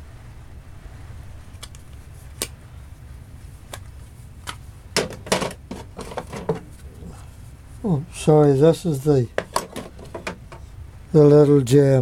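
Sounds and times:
low steady rumble: 0.0s - 12.0s
metal clacks and knocks: 5.0s - 6.7s, 9.3s - 10.6s.

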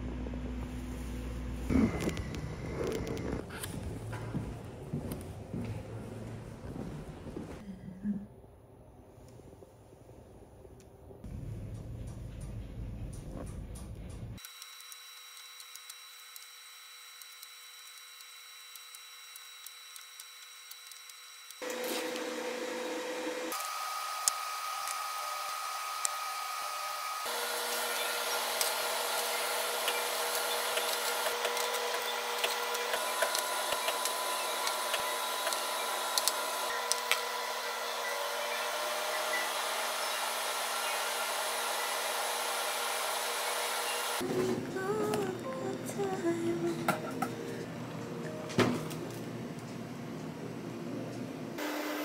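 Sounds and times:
fan whirring: 0.0s - 7.6s, 21.6s - 51.6s.

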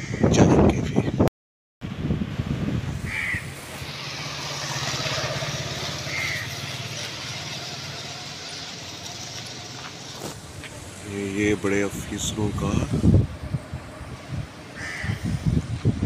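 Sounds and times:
motor humming: 3.5s - 10.6s.

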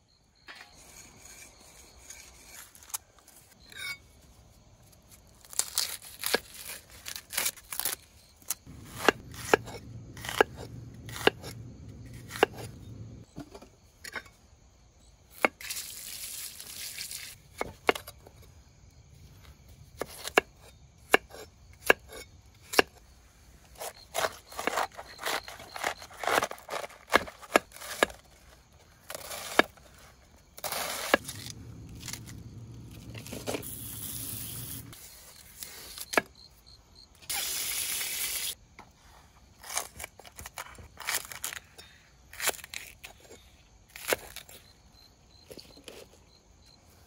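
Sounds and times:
low hum: 8.7s - 13.3s, 31.2s - 35.0s
scraping: 23.8s - 35.0s
short bursts of hiss: 33.7s - 34.9s, 37.3s - 38.5s.

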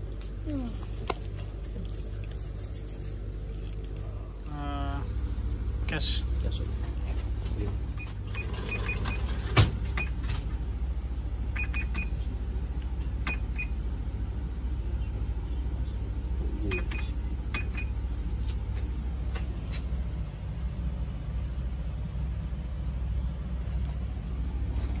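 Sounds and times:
cash register key clicks and beeps: 8.0s - 10.2s, 11.6s - 12.1s, 13.2s - 13.7s, 16.7s - 18.0s.

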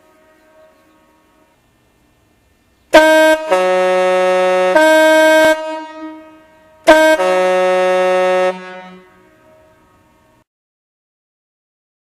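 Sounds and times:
ship horn blasts: 0.0s - 1.6s, 2.9s - 10.4s.

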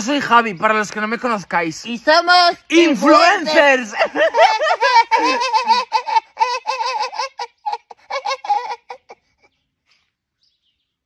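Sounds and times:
high-pitched giggling laughter: 3.5s - 9.6s.

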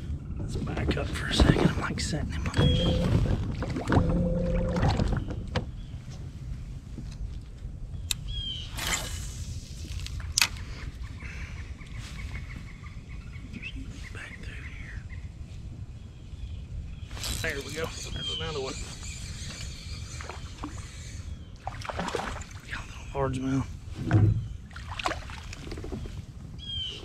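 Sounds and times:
low rumble: 0.0s - 10.4s, 22.2s - 26.6s
faint bird chirps: 16.2s - 21.6s.

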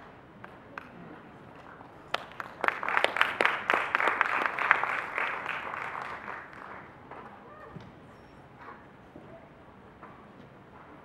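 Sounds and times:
audience applauding: 2.1s - 6.9s.

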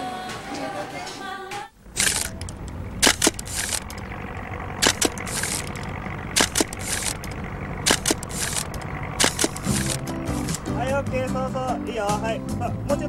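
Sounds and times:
low rumble: 1.8s - 12.9s
camera shutter double click: 2.0s - 4.0s, 7.9s - 10.6s.

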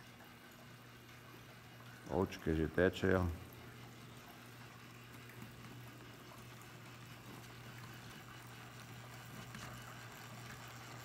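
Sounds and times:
low steady hum: 0.0s - 11.0s
water trickling: 0.0s - 11.0s.

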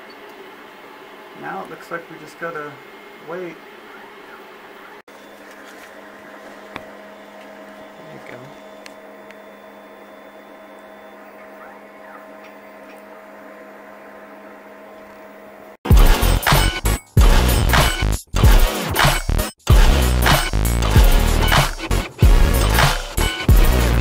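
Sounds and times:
printer low hum: 0.0s - 15.8s.

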